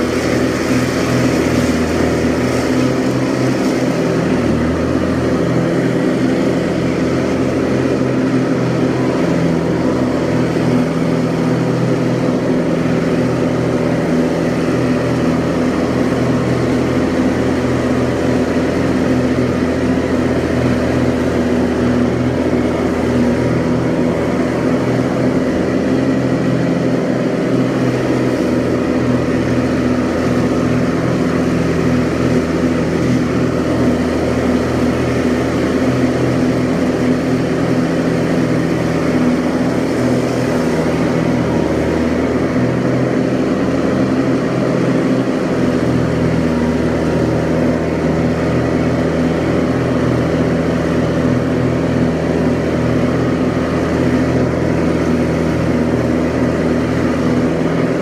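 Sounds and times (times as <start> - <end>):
tractor engine mowing grass: 0.0 - 58.0.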